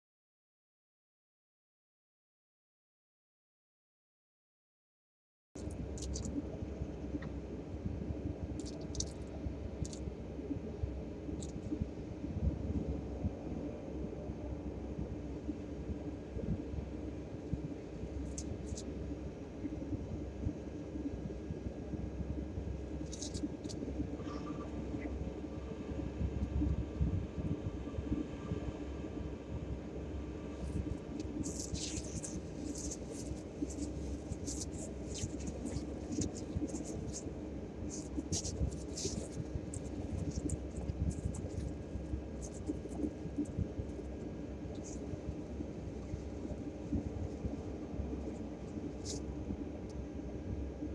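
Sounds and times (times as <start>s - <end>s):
low rumble and hiss: 5.6s - 50.9s
faint high scratches: 30.6s - 45.2s
bird scratching on gravel: 31.3s - 37.2s.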